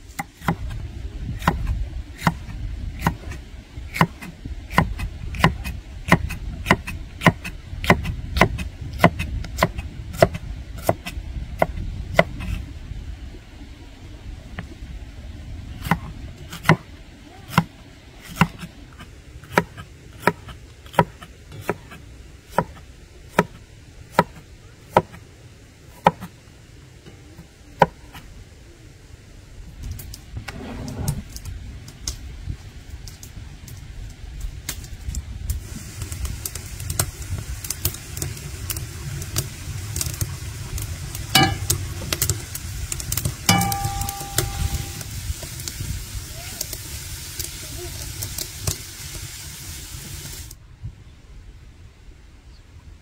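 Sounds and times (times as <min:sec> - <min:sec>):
food sizzling in hot pan: 0:35.6 - 0:50.5.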